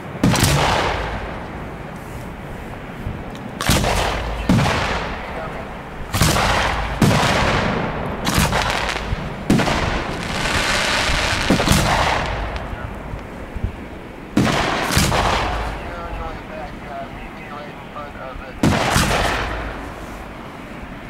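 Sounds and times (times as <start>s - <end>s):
firework shells bursting: 3.3s - 16.8s
firework hiss: 8.3s - 13.5s.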